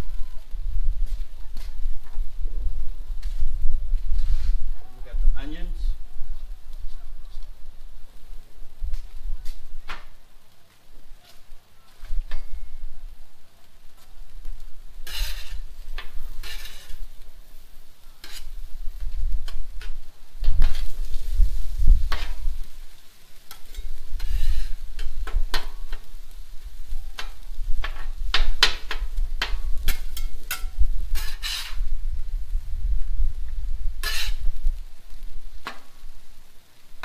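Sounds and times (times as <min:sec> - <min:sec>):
food sizzling on griddle: 0:13.8 - 0:37.0
metal scraper scraping on griddle: 0:15.0 - 0:17.0, 0:18.1 - 0:18.6, 0:23.5 - 0:26.1, 0:27.2 - 0:31.8, 0:34.0 - 0:34.5.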